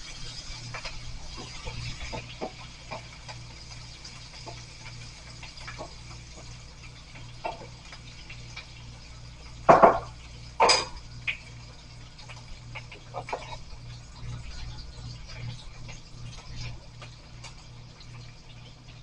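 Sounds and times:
kitchenware clattering: 9.7 - 11.0
wooden spoon stirring in a pan: 12.3 - 14.0.

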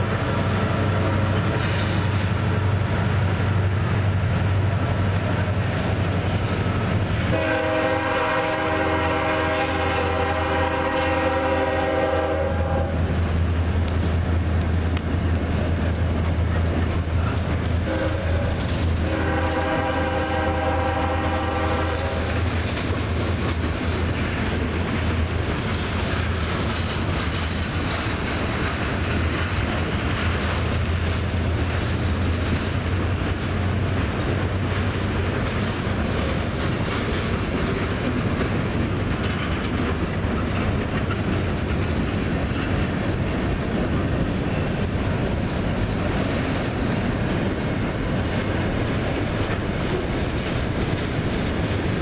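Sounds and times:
freight train rumbling past: 0.0 - 52.0
wheels clattering on rail: 0.0 - 52.0
train horn blowing: 7.3 - 13.1, 17.8 - 22.4.

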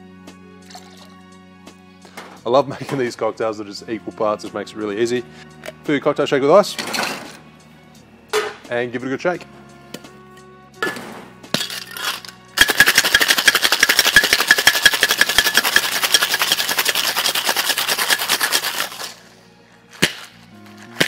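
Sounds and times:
ice rattling in cocktail shaker: 0.7 - 1.1, 11.6 - 19.2
shaker tins knocking: 11.6 - 19.2.

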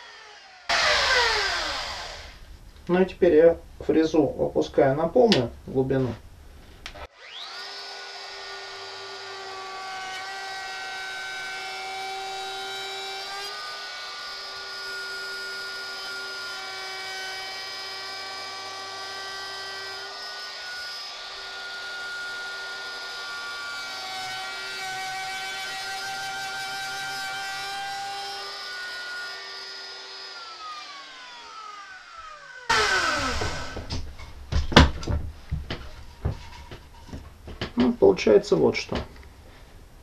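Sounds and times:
router whining: 0.0 - 2.5, 7.0 - 35.1.

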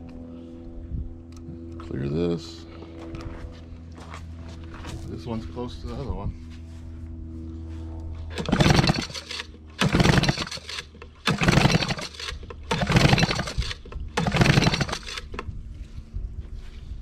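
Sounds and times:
outboard engine pull-starter yanked: 8.3 - 15.5.

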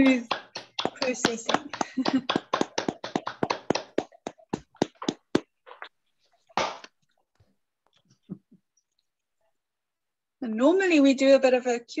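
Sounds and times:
person clapping: 0.0 - 5.5.

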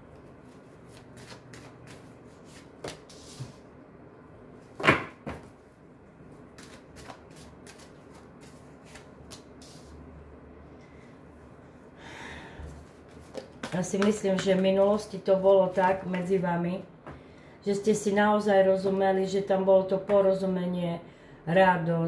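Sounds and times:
cards shuffling and flicking: 0.9 - 3.6, 6.5 - 9.9, 13.1 - 15.0.

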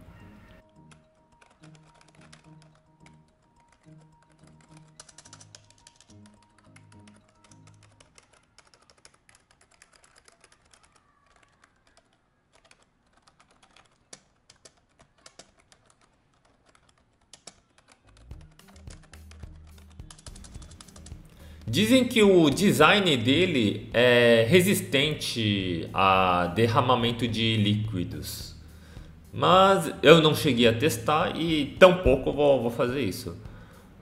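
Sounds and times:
quiet background music: 0.0 - 34.0
keyboard key clicks: 0.7 - 21.3.

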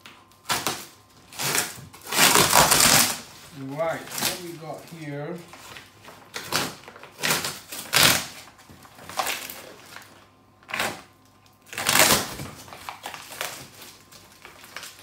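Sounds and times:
blade slicing packing tape: 0.4 - 3.2, 6.3 - 8.5, 11.7 - 13.9
cardboard scraping and tearing: 0.5 - 10.1, 11.7 - 15.0.

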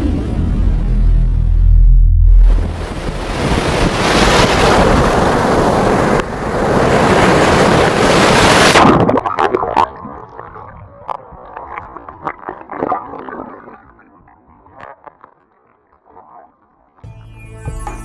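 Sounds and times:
ocean surf breaking: 0.0 - 9.4.

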